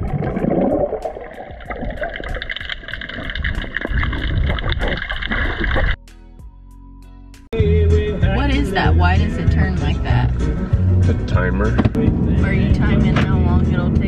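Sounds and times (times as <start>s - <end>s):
underwater rushing and bubbling: 0.0s - 6.0s
music with steady beat: 6.0s - 14.0s.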